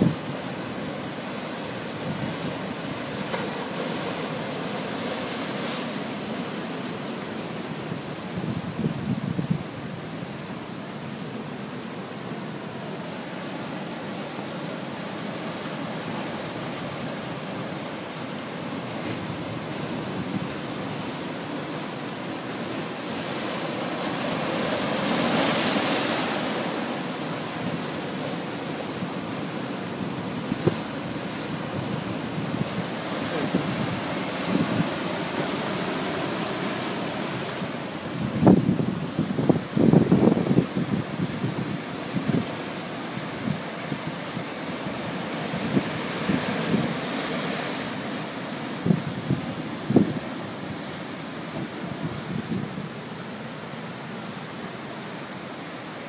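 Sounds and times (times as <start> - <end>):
surf breaking over rocks: 0.0 - 9.7, 11.0 - 56.0
wind on microphone: 8.2 - 10.0, 28.9 - 53.1.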